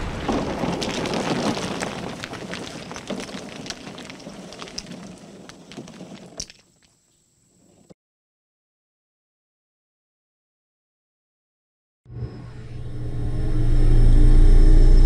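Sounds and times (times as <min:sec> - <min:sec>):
falling rubble rattling: 0:00.0 - 0:07.0
pieces landing with clicks: 0:00.3 - 0:07.0.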